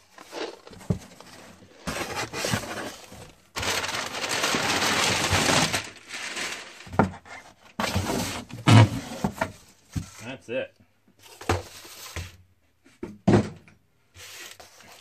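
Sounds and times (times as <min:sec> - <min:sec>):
cardboard box rustling and crunching: 0:00.0 - 0:09.4.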